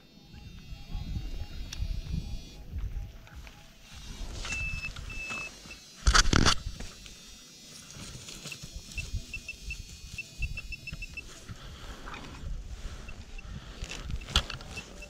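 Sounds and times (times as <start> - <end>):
pinpointer beeping: 0.0 - 5.9, 8.4 - 11.6, 12.9 - 15.0.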